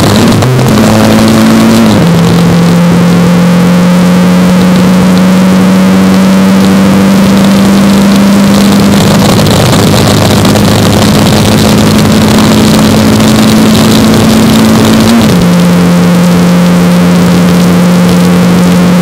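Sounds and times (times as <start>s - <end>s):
racing car engine at high revs: 0.0s - 19.0s.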